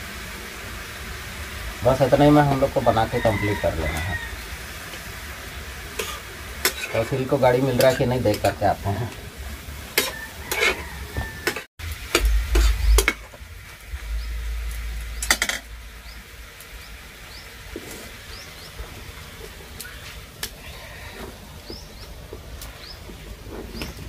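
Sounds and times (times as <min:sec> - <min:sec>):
faint sizzle: 0:00.0 - 0:24.0
metal spatula scraping a pan: 0:05.9 - 0:08.6, 0:09.9 - 0:13.4
small birds chirping: 0:13.9 - 0:24.0.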